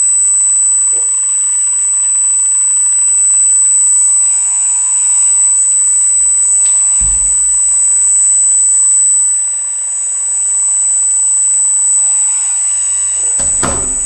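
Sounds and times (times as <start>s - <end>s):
hydraulic pump and motors whining: 12.3s - 14.0s
sharp knock: 13.3s - 14.0s.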